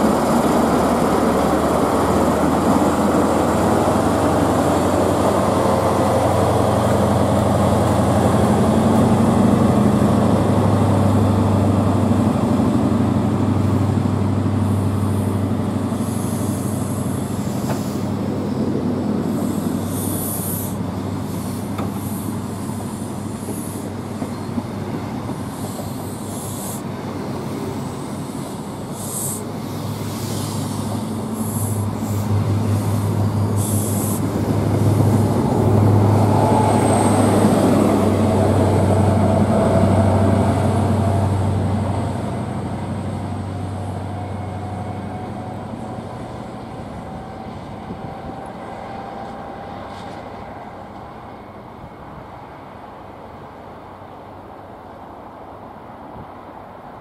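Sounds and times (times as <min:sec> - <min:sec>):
diesel train engine drone: 0:00.0 - 0:57.0.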